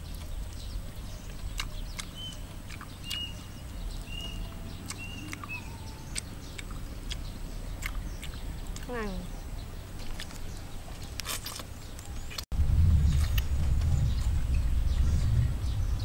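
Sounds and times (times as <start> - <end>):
chewing clicks and smacks: 0.0 - 9.0, 10.0 - 12.5
low wind rumble: 0.0 - 16.0
faint bird chirps: 0.1 - 9.8.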